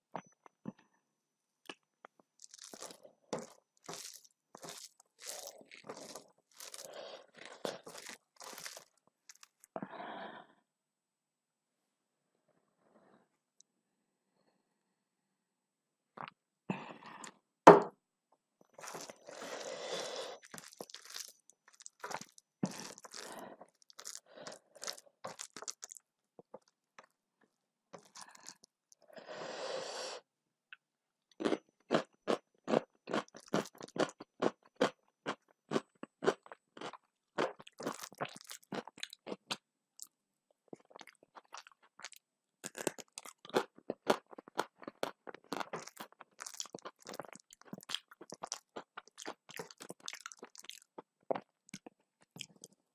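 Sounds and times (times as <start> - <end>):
wet mixing of food by hand: 2.4 - 6.8
crunchy chewing: 2.4 - 9.7, 18.8 - 19.5, 20.3 - 26.0, 31.4 - 39.6, 40.7 - 52.8.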